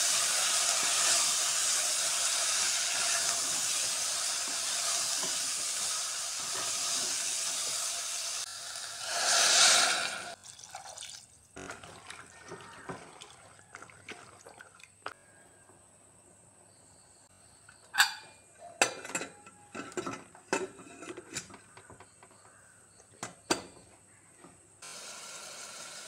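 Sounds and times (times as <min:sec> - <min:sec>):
food sizzling in a pot: 0:00.0 - 0:10.4, 0:24.8 - 0:26.0
water pouring with a hiss: 0:00.0 - 0:14.7.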